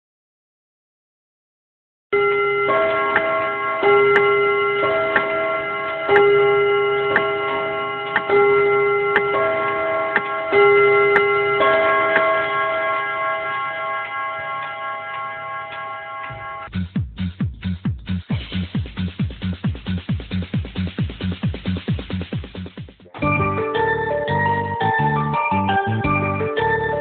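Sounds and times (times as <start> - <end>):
bell-like chime notes: 2.2 - 16.7, 23.2 - 27.0
clock ticking: 2.7 - 16.7.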